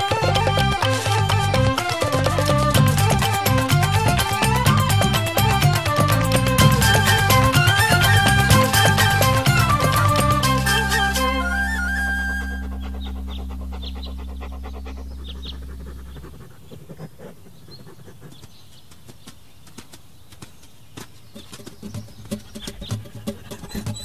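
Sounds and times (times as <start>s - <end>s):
dog panting: 0.0s - 10.8s, 11.4s - 19.2s, 21.9s - 24.0s
low music chord: 0.2s - 16.2s
faint bird chirps: 12.4s - 19.8s.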